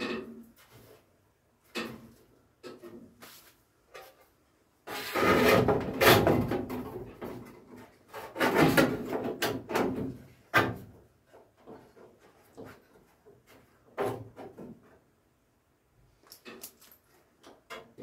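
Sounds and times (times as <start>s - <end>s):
steel panels scraping bodywork: 4.9s - 7.0s.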